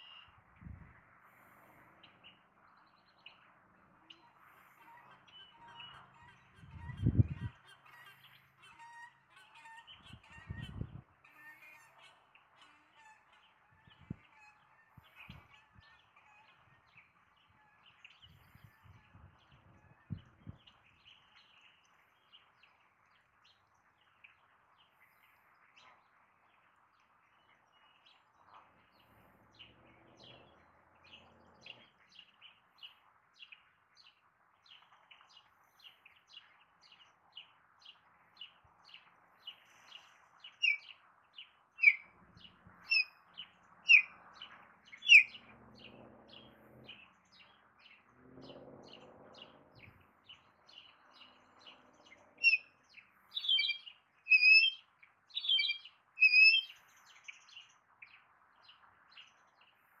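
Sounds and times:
goslings peeping: 0:04.1 - 0:16.6, 0:40.6 - 0:40.8, 0:41.8 - 0:42.1, 0:42.9 - 0:43.1, 0:43.9 - 0:44.1, 0:44.9 - 0:45.9, 0:53.4 - 0:54.8, 0:55.4 - 0:56.7.

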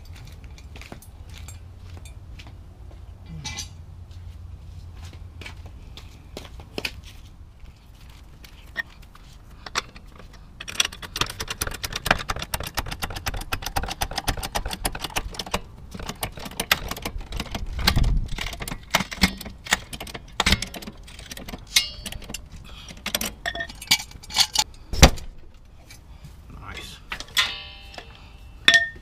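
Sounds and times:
trolley jack clicking: 0:10.6 - 0:24.7.

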